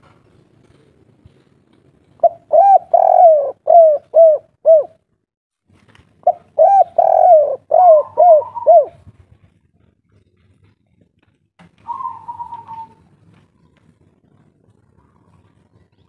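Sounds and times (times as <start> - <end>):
dove cooing: 2.2 - 5.0, 6.2 - 9.1, 11.8 - 13.1.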